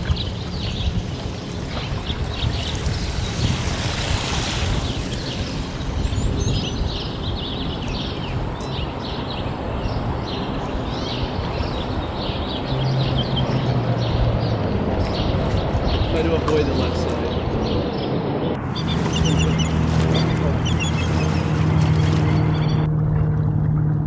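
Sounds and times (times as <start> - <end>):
small birds chirping: 0.0 - 22.9
low hum: 17.7 - 24.0.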